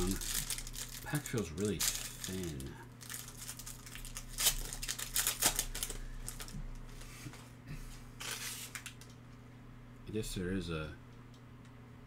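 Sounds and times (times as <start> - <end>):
foil wrapper crinkling and tearing: 0.0 - 6.6, 8.2 - 9.1.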